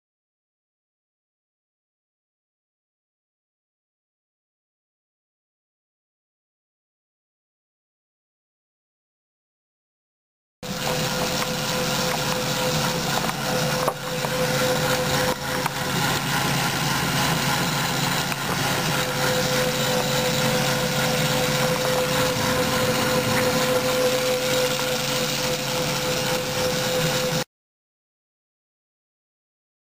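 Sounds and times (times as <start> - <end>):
motor whirring and rubbing: 10.6 - 27.4.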